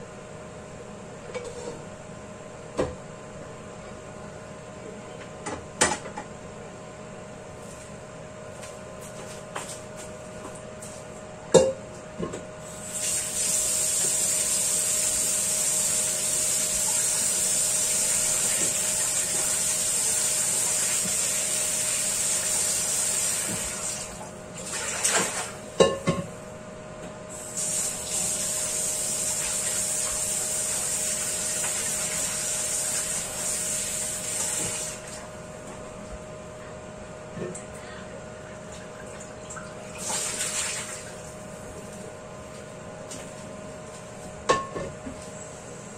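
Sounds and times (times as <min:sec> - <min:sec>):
steady hum: 0:00.0 - 0:45.9
tap water running into a wok: 0:12.9 - 0:14.9, 0:15.7 - 0:24.2, 0:29.2 - 0:35.0.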